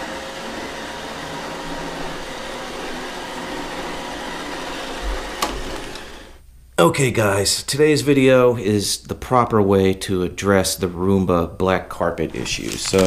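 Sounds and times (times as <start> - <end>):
robot vacuum whirring: 0.0 - 6.4, 12.3 - 13.0.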